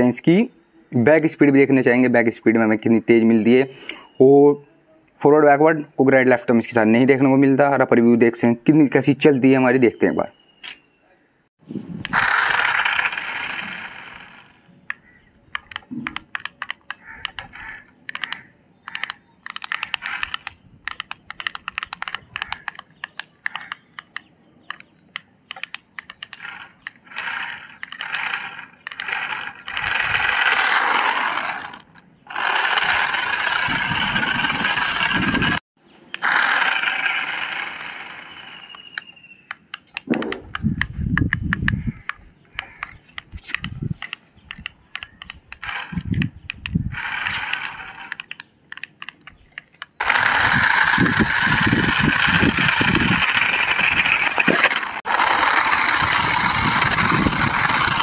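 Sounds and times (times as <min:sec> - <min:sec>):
plastic controller buttons clicking: 0:14.8 - 0:29.8, 0:38.7 - 0:50.0.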